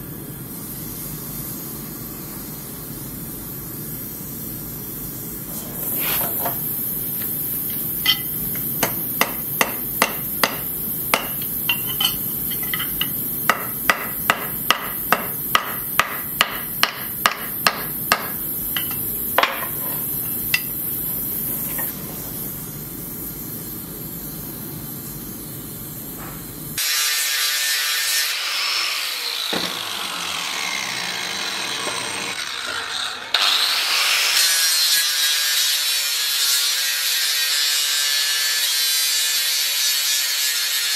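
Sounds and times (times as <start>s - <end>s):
hammer striking steel on anvil: 7.7s - 19.9s, 20.5s - 20.8s
angle grinder whining: 26.8s - 38.9s.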